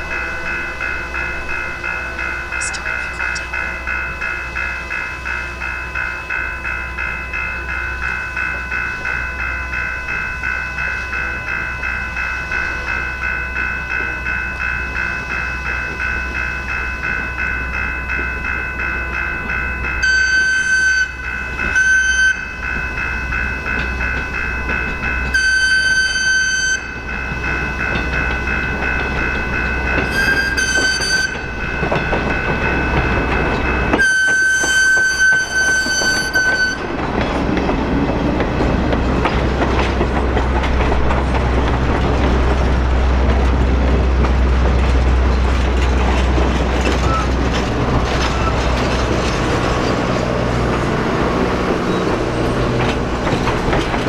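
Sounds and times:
train rumble: 0:00.0 - 0:54.0
steam whistle blasts: 0:20.0 - 0:21.2, 0:21.8 - 0:22.5, 0:25.3 - 0:26.9, 0:30.1 - 0:31.4, 0:34.0 - 0:36.8
wheel clatter: 0:27.5 - 0:54.0.

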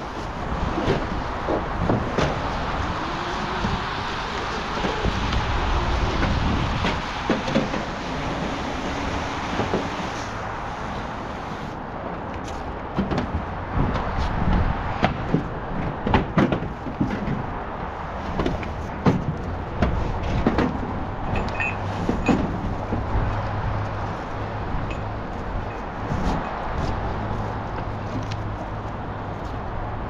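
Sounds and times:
steady background noise: 0:00.0 - 0:30.0
knocks and clattering: 0:18.3 - 0:23.2.

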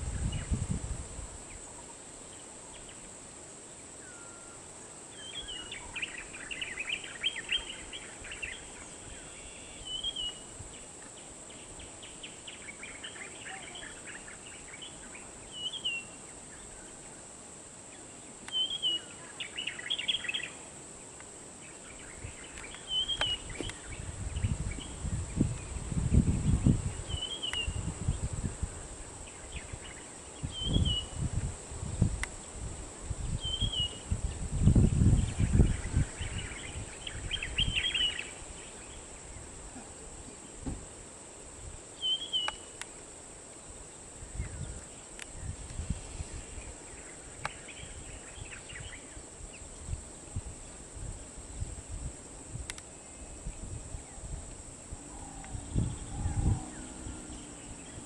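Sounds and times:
insect drone: 0:00.0 - 0:58.0
bird chirping: 0:04.0 - 0:10.5, 0:11.2 - 0:17.0, 0:17.9 - 0:20.6, 0:21.6 - 0:28.2, 0:33.3 - 0:39.5, 0:42.0 - 0:42.8, 0:55.0 - 0:58.0.

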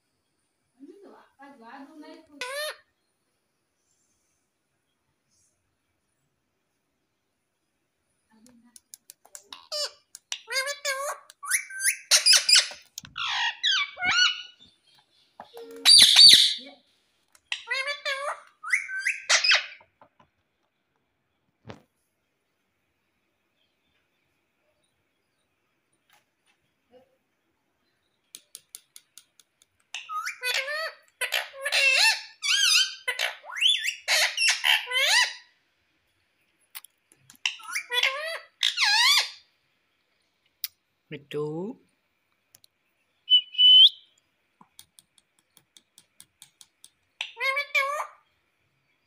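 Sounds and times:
parakeet chattering calls: 0:09.5 - 0:14.6, 0:15.9 - 0:16.6, 0:17.5 - 0:19.8, 0:30.0 - 0:35.5
parakeet harsh squawk: 0:09.6 - 0:14.6, 0:15.9 - 0:16.6, 0:17.5 - 0:19.8, 0:30.0 - 0:35.5, 0:37.4 - 0:39.4.

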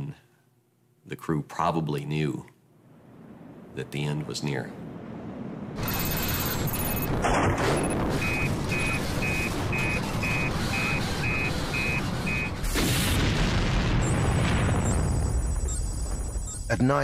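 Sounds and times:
low rumbling: 0:02.6 - 0:12.6
burst of noise: 0:02.8 - 0:17.0
short high electronic beeps: 0:05.8 - 0:07.1, 0:08.1 - 0:12.6.

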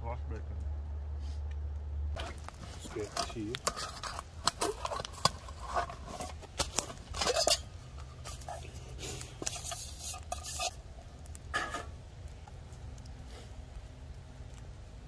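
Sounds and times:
metal cup clinking and scraping: 0:02.2 - 0:10.8, 0:11.5 - 0:11.9.

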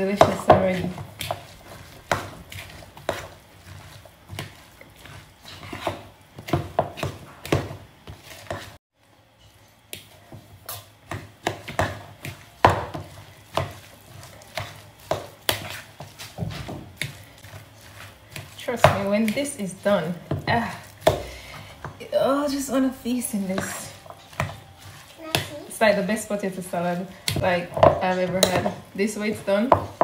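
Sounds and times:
spoon knocking and scraping bowl: 0:10.7 - 0:26.6, 0:27.2 - 0:30.0.

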